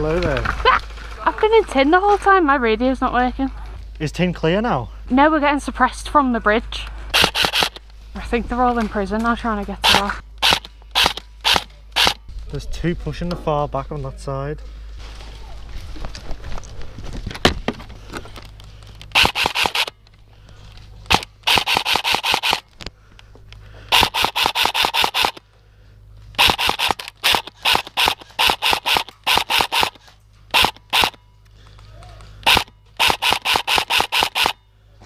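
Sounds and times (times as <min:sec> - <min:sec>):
airsoft rifle bursts: 0:07.1 - 0:07.9, 0:09.8 - 0:12.2, 0:19.0 - 0:20.1, 0:21.0 - 0:22.9, 0:23.9 - 0:25.4, 0:26.3 - 0:31.3, 0:32.2 - 0:34.6.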